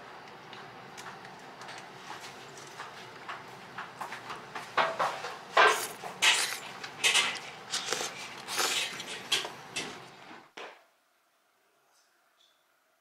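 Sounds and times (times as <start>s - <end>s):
low room hum: 0.0s - 13.0s.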